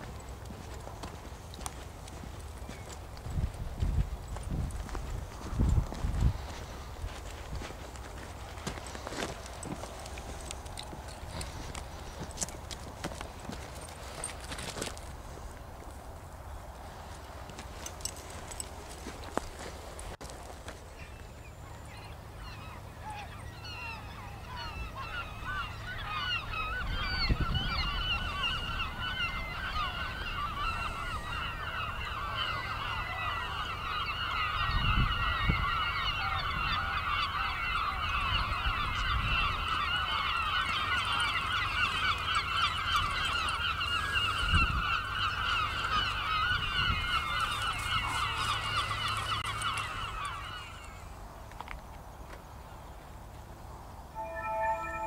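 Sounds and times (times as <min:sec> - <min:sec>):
flock of geese honking: 0:22.0 - 0:51.0.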